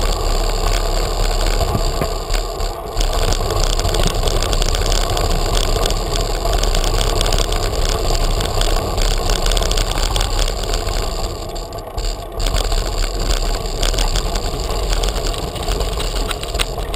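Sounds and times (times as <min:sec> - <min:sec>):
bicycle rolling over cobblestones: 0:00.0 - 0:16.9.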